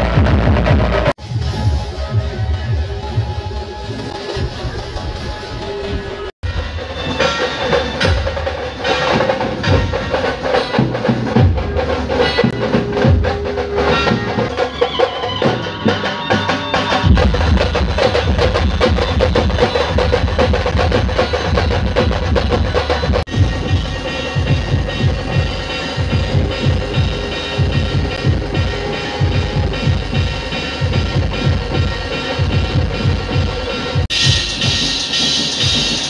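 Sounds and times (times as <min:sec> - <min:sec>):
bass drum: 0:00.0 - 0:06.8, 0:17.0 - 0:36.0
procession band playing: 0:00.0 - 0:36.0.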